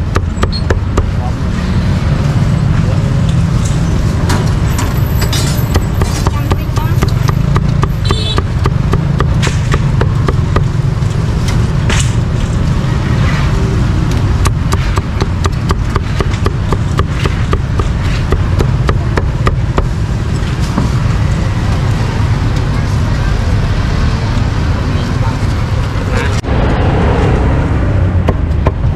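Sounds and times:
street traffic rumble: 0:00.0 - 0:28.9
cleaver chopping meat on block: 0:05.7 - 0:10.7, 0:14.4 - 0:19.9.

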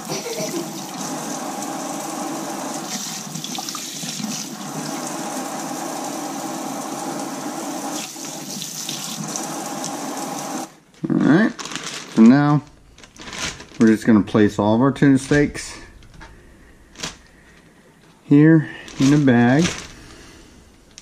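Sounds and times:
faucet running into sink: 0:00.1 - 0:10.7.

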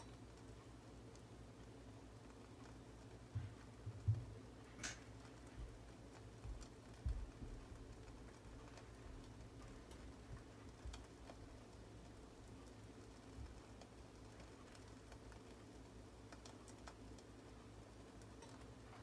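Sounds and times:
egg batter crackling in a pan: 0:00.0 - 0:19.0
low steady hum: 0:00.0 - 0:19.0
soft low thumps: 0:03.3 - 0:04.5, 0:06.4 - 0:08.0.

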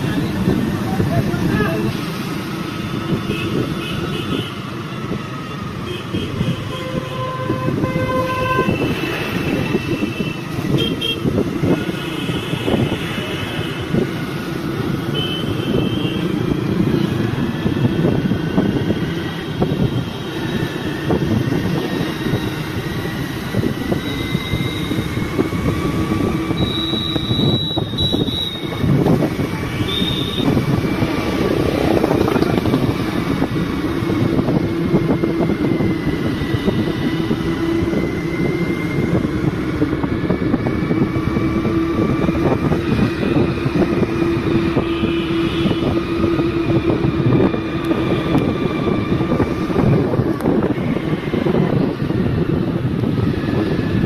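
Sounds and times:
wind rumble: 0:00.0 - 0:54.0
vehicle horns tooting: 0:05.8 - 0:13.9, 0:15.1 - 0:16.4, 0:26.4 - 0:30.8, 0:43.3 - 0:46.9.

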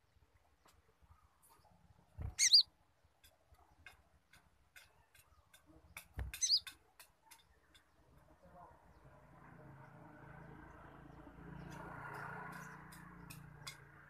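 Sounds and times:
bird chattering calls: 0:02.3 - 0:02.7, 0:06.0 - 0:06.8.

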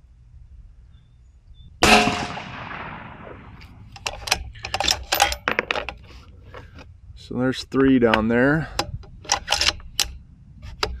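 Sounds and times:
rifle shot with echo: 0:01.8 - 0:03.9
rifle bolt clicking: 0:08.8 - 0:10.2.

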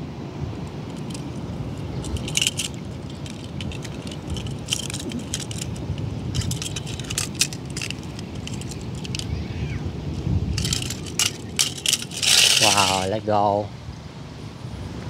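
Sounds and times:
wind rumble on microphone: 0:00.0 - 0:15.0
toy cars clinking together: 0:02.0 - 0:09.3, 0:10.6 - 0:13.0.

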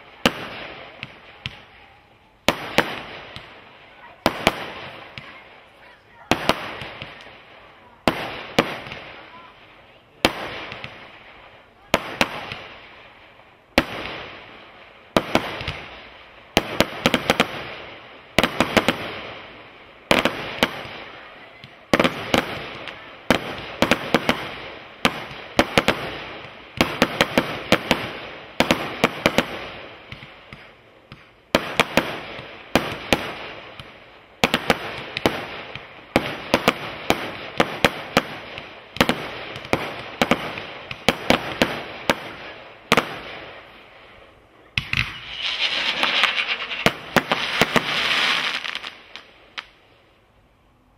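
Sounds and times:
firework bangs with crackle: 0:00.0 - 0:09.5, 0:10.1 - 0:43.9, 0:44.8 - 0:49.8.

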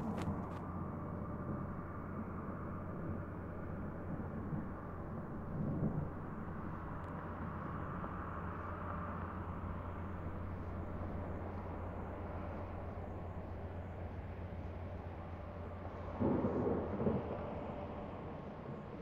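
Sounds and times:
distant low mechanical rumble: 0:00.0 - 0:19.0.

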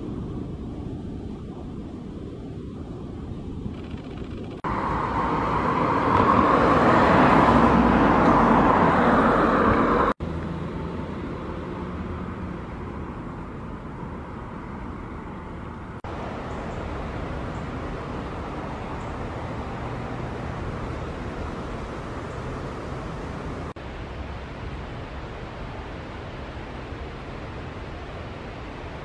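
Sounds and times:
outdoor background noise: 0:00.0 - 0:29.0
vehicle passing: 0:04.6 - 0:23.8.

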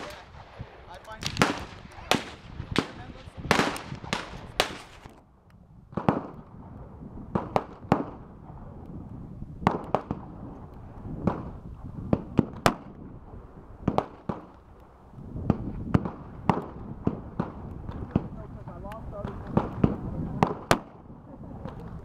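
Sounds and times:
revolver gunshots: 0:00.0 - 0:05.1
other gunfire: 0:00.0 - 0:05.2.

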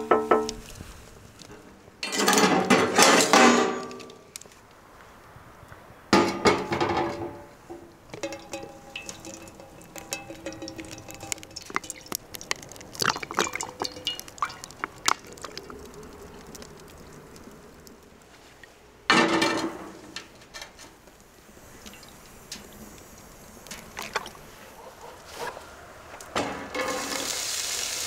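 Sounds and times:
pans and bottle clinking: 0:08.1 - 0:15.7
oil pouring into frying pan: 0:08.2 - 0:16.6, 0:26.8 - 0:28.0.

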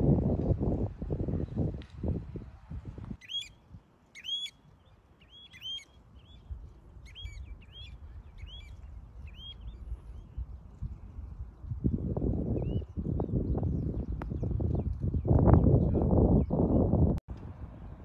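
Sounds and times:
small bird chirping: 0:04.2 - 0:10.9.

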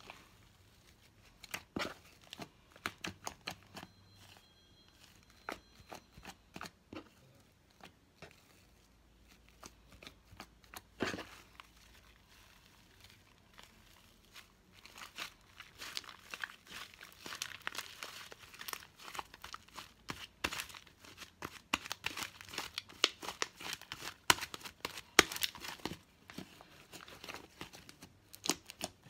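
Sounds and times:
slime crackling and popping: 0:09.3 - 0:26.1, 0:27.4 - 0:29.0.

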